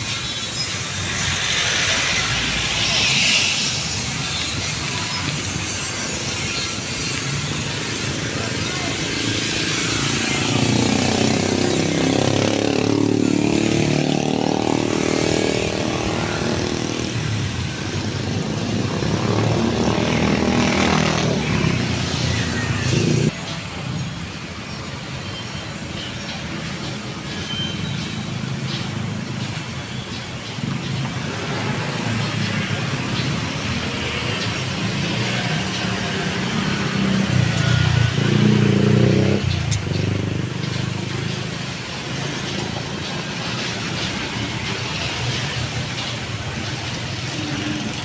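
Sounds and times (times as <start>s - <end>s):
motorcycles and cars driving past: 1.4s - 23.5s, 27.7s - 48.0s.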